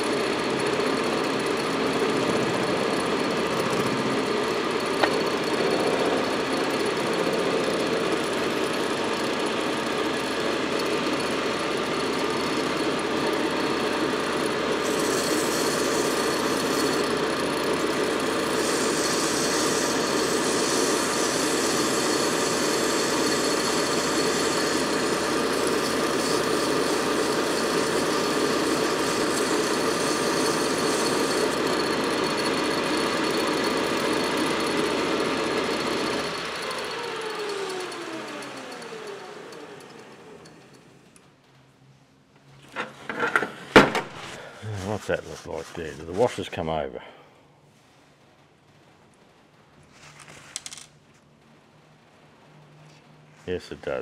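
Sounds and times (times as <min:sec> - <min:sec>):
metal lathe running: 0:00.0 - 0:41.0.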